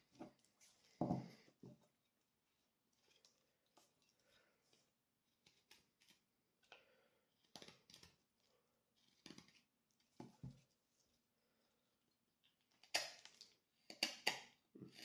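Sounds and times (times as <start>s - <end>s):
knife shaving wooden stick: 0.0s - 11.2s.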